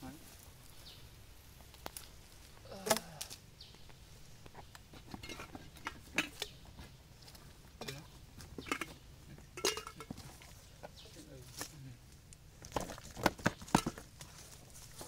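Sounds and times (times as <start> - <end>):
plastic pipe and box knocking: 12.7 - 14.1.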